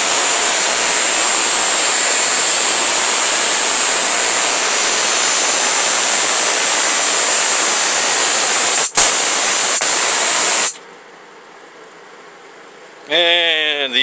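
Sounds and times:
spark gap hissing and whining: 0.0s - 10.8s
sharp spark crack: 2.9s - 10.8s.

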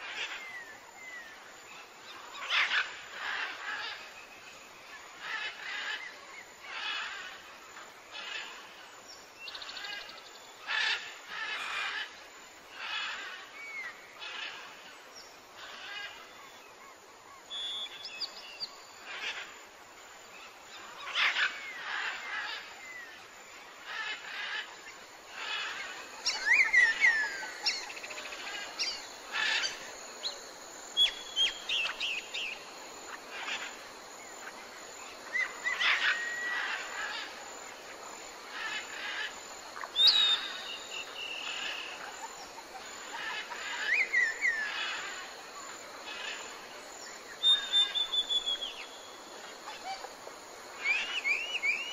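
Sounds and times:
faint steady hiss: 0.0s - 51.9s
small birds chirping: 23.8s - 37.7s, 38.4s - 49.9s.

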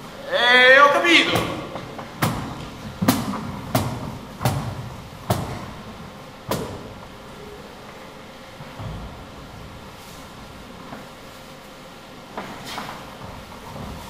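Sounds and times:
sharp thuds on a stage: 1.3s - 5.8s, 6.5s - 7.0s.

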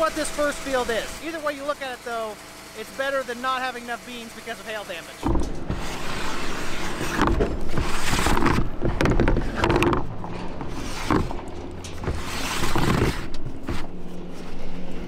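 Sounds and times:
low engine hum: 0.0s - 15.0s
plastic lid grinding: 5.3s - 14.0s.

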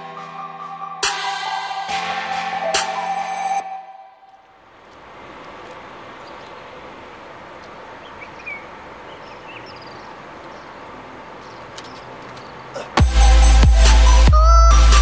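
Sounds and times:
outdoor background noise: 1.9s - 15.0s
faint bird chirps: 8.0s - 10.8s.

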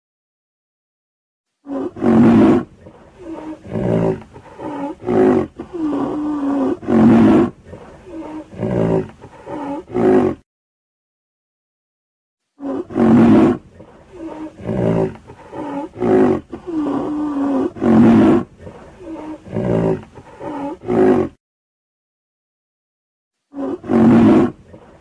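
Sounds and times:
rhinoceros calling: 1.7s - 10.4s, 12.6s - 21.4s.

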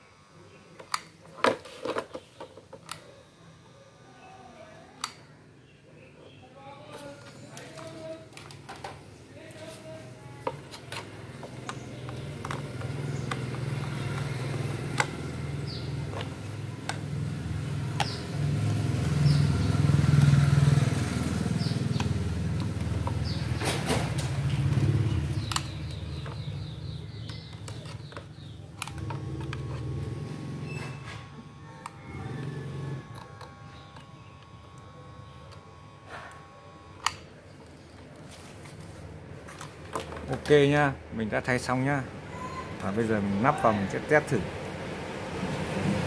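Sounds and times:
vehicle engine rumbling: 10.4s - 36.5s.

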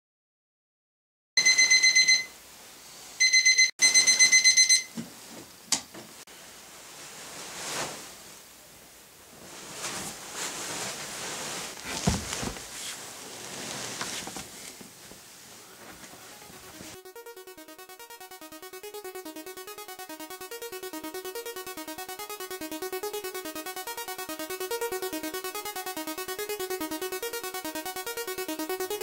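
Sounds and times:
alarm clock beeping: 1.4s - 2.4s, 3.2s - 5.0s, 16.4s - 29.0s
faint rustling: 9.3s - 16.4s
soft knocks of someone moving: 11.8s - 12.8s.

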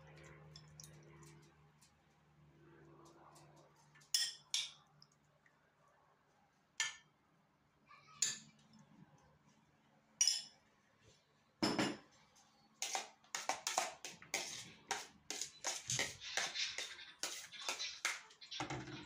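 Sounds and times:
metal spoon clinking on glass: 4.1s - 4.8s, 10.2s - 10.6s.

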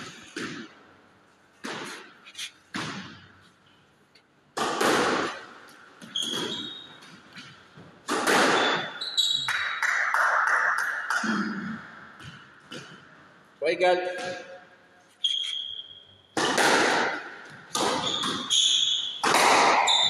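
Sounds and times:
squash ball hits echoing: 0.0s - 0.9s, 1.6s - 3.4s, 4.5s - 13.1s, 13.8s - 14.8s, 16.3s - 20.0s
shoes squeaking on wooden floor: 6.0s - 7.9s, 8.6s - 9.5s, 15.1s - 16.0s, 17.8s - 19.2s.

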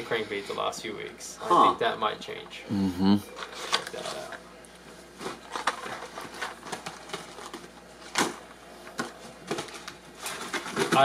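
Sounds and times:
plastic packaging rustling: 3.4s - 4.4s, 5.1s - 11.0s.

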